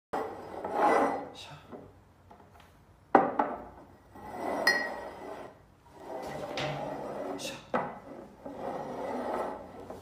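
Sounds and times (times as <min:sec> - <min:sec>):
mug scraping on wooden table: 0:00.2 - 0:01.3, 0:04.1 - 0:10.0
mugs knocking on table: 0:03.1 - 0:03.7.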